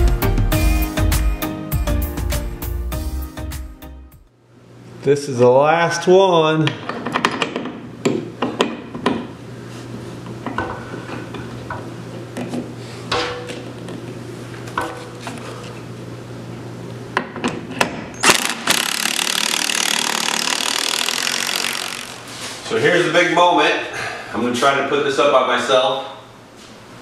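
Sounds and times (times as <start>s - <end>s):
cordless drill running: 18.2s - 22.4s.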